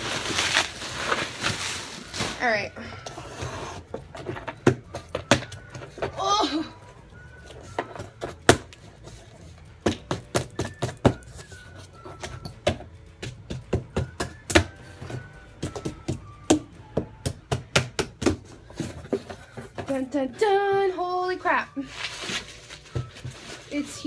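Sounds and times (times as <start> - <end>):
bubble wrap crackling and popping: 0.0 - 3.0, 21.7 - 24.0.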